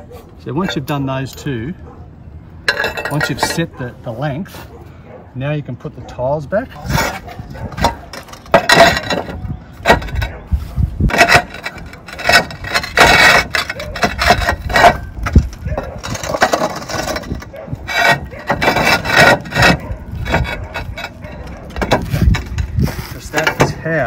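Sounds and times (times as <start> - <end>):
roof tiles scraping and knocking: 2.7 - 3.7, 6.7 - 24.0.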